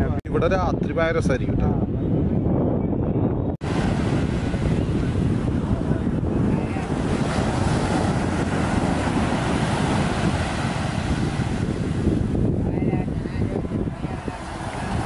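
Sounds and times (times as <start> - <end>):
wind buffeting microphone: 0.0 - 15.0
surf washing onto beach: 3.6 - 15.0.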